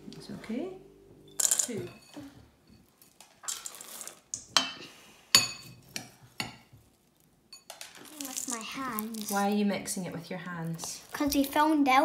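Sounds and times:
metal spoon clinking on bowl: 0:01.3 - 0:03.2, 0:07.5 - 0:08.0.

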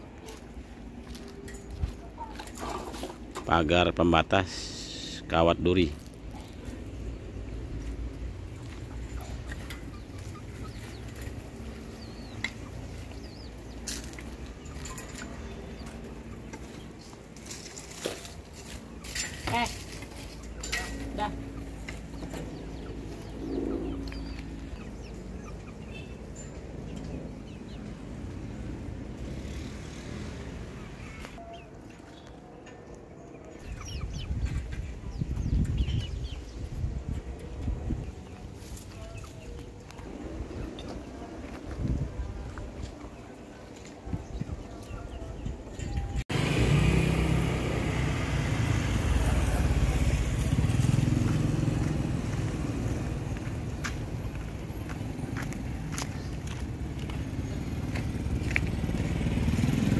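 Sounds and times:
chickens clucking: 0:00.0 - 0:03.6, 0:05.7 - 0:28.5, 0:31.2 - 0:36.4, 0:37.1 - 0:46.2
vehicle engine running: 0:46.3 - 0:59.9.

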